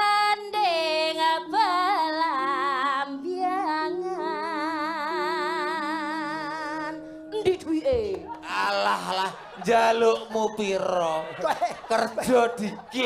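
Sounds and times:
woman singing into a microphone: 0.0 - 8.6.

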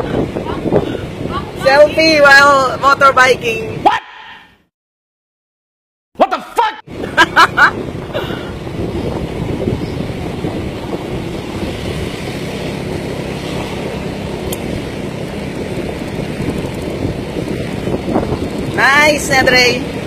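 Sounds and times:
wind on microphone: 0.0 - 3.8, 6.9 - 20.0
motor scooter engine: 7.0 - 20.0.

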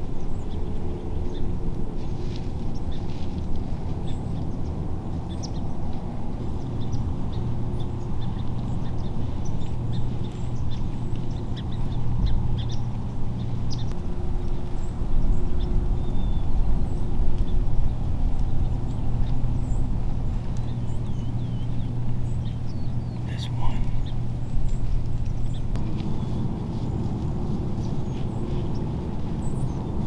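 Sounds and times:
low rumble with hum: 0.0 - 30.0
small birds chirping: 0.0 - 30.0.

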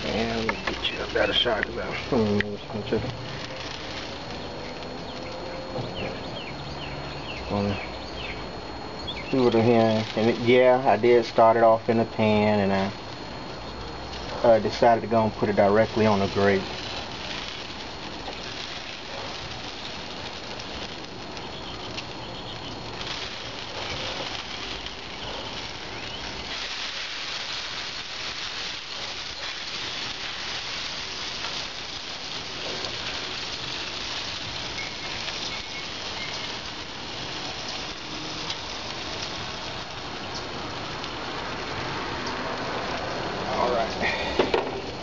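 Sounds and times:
chicken wings sizzling on a grill: 0.0 - 45.0.

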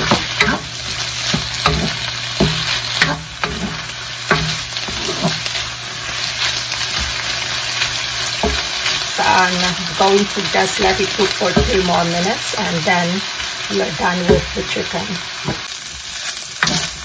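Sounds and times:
wooden spoon scraping a pan: 0.0 - 12.3, 16.6 - 17.0
food sizzling in oil: 0.0 - 17.0.

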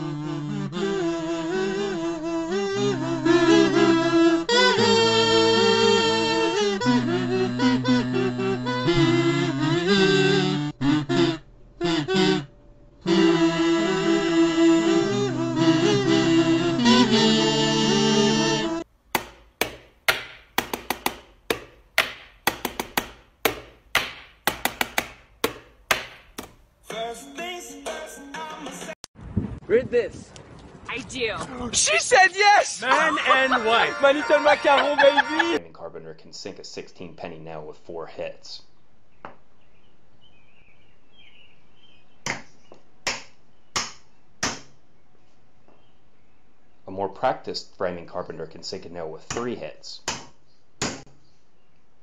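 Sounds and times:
hammer driving nail into wood: 19.2 - 26.6
hand tapping knocks: 19.2 - 26.6.

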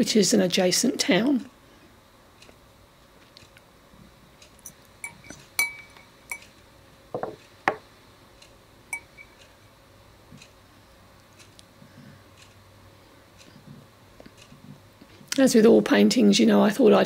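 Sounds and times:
light taps and clinks: 4.6 - 6.5
short glassy ring: 5.0 - 6.4, 8.9 - 9.4.

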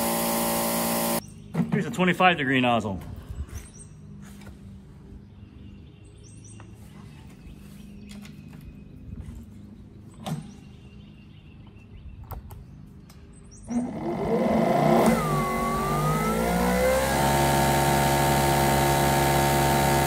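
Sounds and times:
pressure washer motor and pump: 0.0 - 1.2, 13.7 - 20.0.

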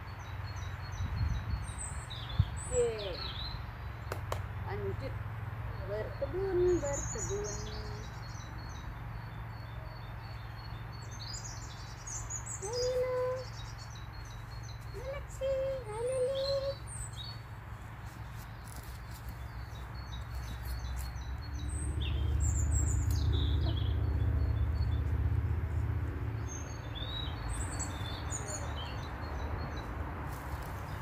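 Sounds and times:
small birds chirping: 0.0 - 31.0.

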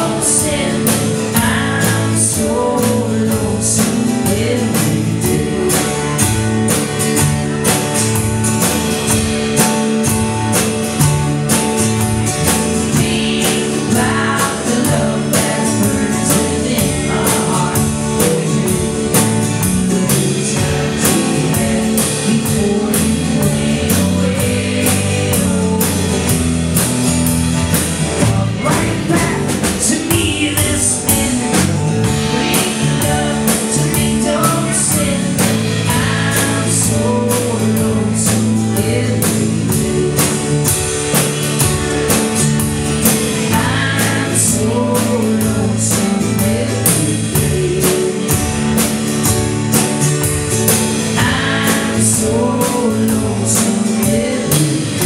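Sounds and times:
man singing: 0.0 - 6.5, 12.8 - 26.6, 28.0 - 41.2, 43.4 - 48.9, 51.1 - 55.0
drum kit beat: 0.0 - 55.0
live pop-rock band: 0.0 - 55.0.

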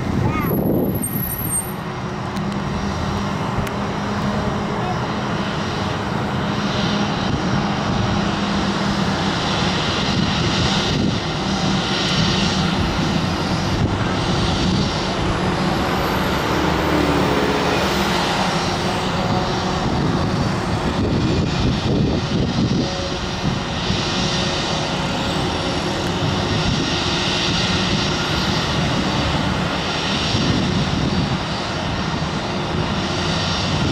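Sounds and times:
jet engines rushing hiss: 0.0 - 33.9.

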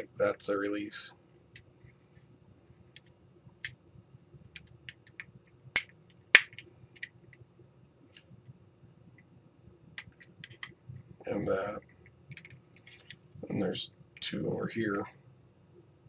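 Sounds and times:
plastic clips snapping: 4.6 - 7.1, 10.0 - 10.8.

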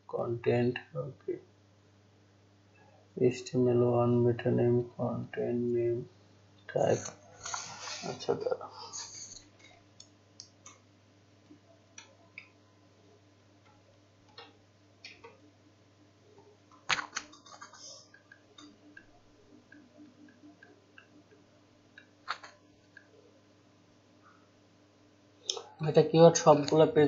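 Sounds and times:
faint steady hum: 0.0 - 27.0
keyboard and mouse clicks: 16.7 - 18.8, 22.0 - 23.1.

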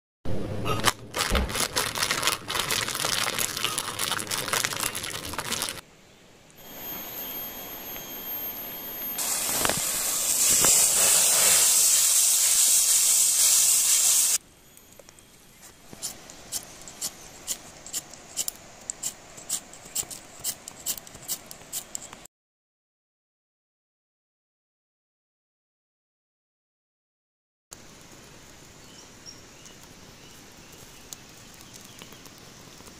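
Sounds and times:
wood fire crackling: 0.8 - 5.8, 9.1 - 22.2, 27.8 - 32.9
vegetables sizzling in a wok: 6.6 - 14.4
light sharp ticks: 29.6 - 30.0, 30.7 - 32.9.

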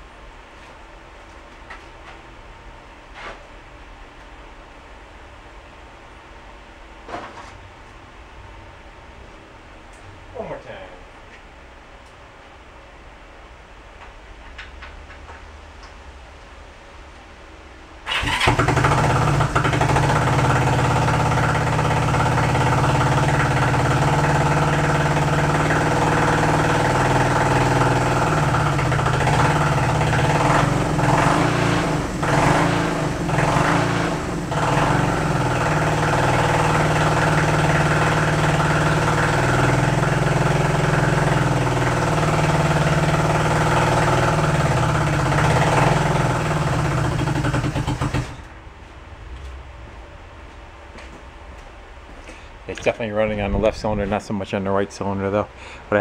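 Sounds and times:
motorcycle engine running unevenly: 18.1 - 48.5.

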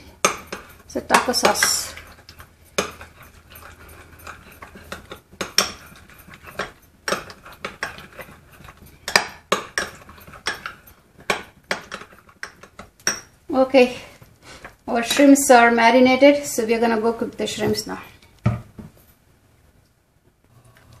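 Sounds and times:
spoon stirring thick sauce: 0.0 - 13.4
spoon clinking against glass: 0.2 - 13.3.

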